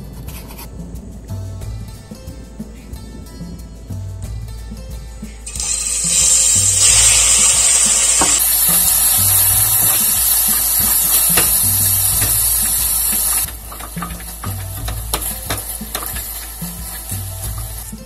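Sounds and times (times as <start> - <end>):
meat sizzling in hot oil: 5.5 - 18.0
spatula clicking on pot: 5.6 - 17.9.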